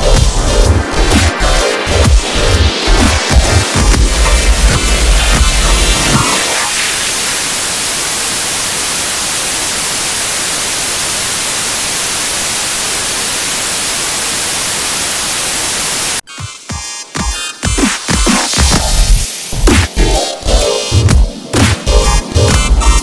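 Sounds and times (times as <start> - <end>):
electronic music with a beat: 0.0 - 7.1, 16.2 - 23.0
tv static hiss: 0.0 - 16.3.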